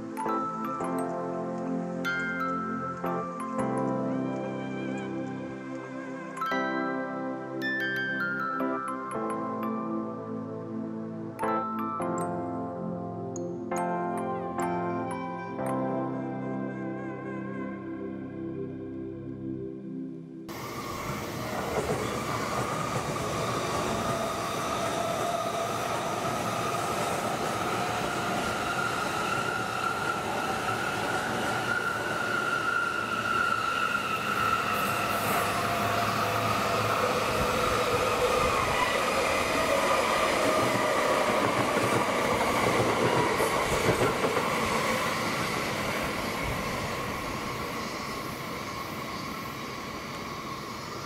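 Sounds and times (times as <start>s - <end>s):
train rumbling past: 20.5s - 51.0s.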